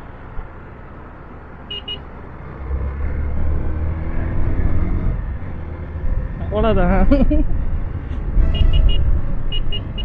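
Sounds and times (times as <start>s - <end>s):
traffic: 0.0s - 10.0s
horn beeps: 1.7s - 2.0s, 8.4s - 10.0s.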